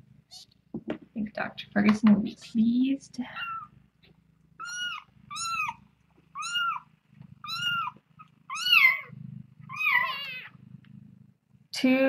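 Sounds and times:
low purr: 0.0s - 12.0s
kitten mewing: 3.3s - 3.7s, 4.6s - 6.8s, 7.4s - 10.6s.

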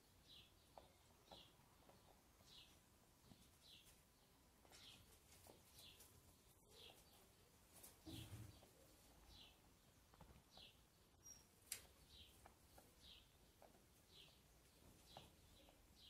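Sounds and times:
small bird chirping: 0.0s - 16.0s.

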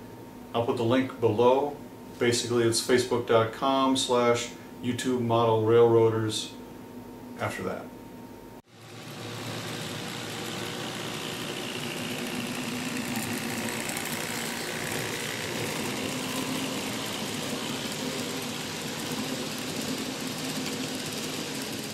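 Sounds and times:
model train motor whirring: 8.7s - 21.9s
model train wheels rolling: 8.8s - 21.9s.

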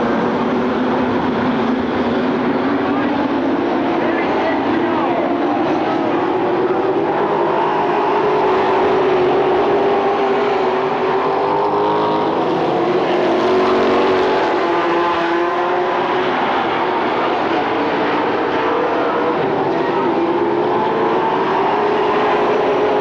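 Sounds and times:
race car engines roaring past: 0.0s - 23.0s.

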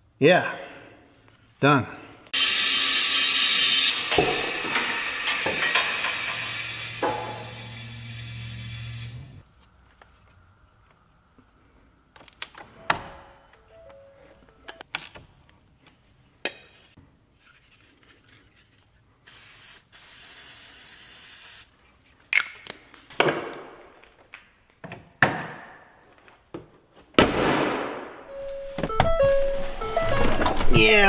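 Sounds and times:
electronic warning chime: 28.3s - 31.0s.

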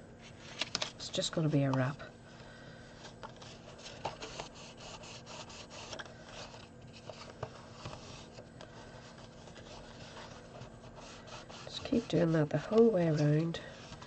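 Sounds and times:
fingers rubbing card: 3.4s - 8.4s, 9.2s - 14.0s.

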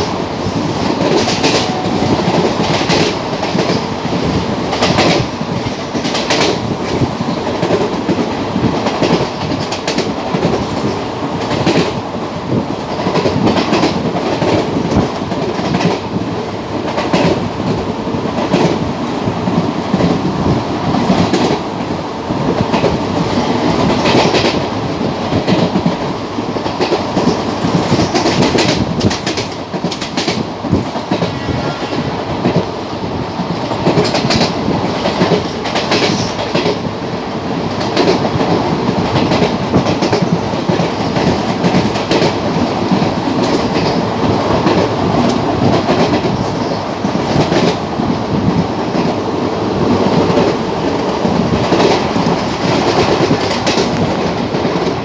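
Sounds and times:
train wheels rumbling on track: 0.0s - 55.0s
clacks over rail joints: 22.6s - 31.3s, 33.5s - 36.9s, 37.7s - 47.8s, 49.9s - 55.0s.

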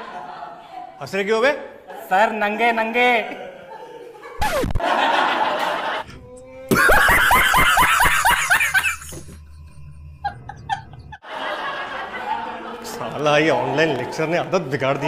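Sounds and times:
man laughing loudly: 6.7s - 9.5s, 10.2s - 11.2s.

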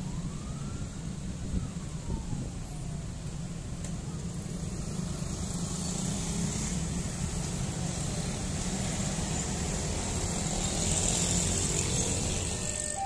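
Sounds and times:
motor scooters and motorcycles: 4.8s - 13.0s.

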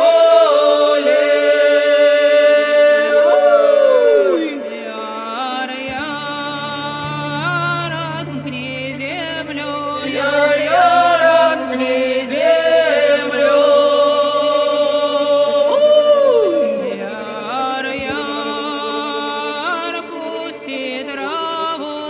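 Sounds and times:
chant-like folk singing: 0.0s - 22.0s.

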